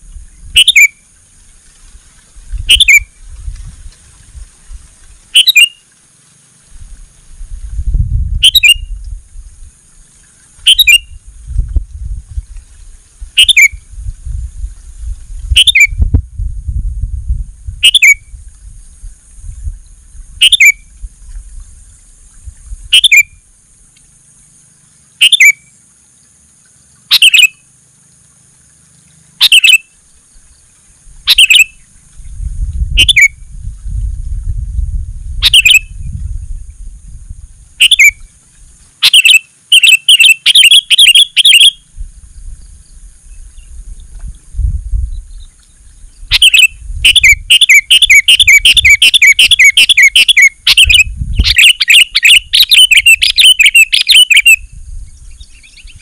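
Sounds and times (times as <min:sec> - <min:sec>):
bird calling: 0:00.0 - 0:01.5, 0:02.6 - 0:03.2, 0:05.1 - 0:06.0, 0:08.4 - 0:09.0, 0:09.9 - 0:11.2, 0:12.7 - 0:13.8, 0:15.5 - 0:16.0, 0:17.8 - 0:18.3, 0:20.4 - 0:21.4, 0:22.9 - 0:23.4, 0:24.8 - 0:25.8, 0:27.0 - 0:27.7, 0:28.8 - 0:32.1, 0:33.0 - 0:33.4, 0:35.4 - 0:36.0, 0:37.8 - 0:41.9, 0:45.1 - 0:54.6.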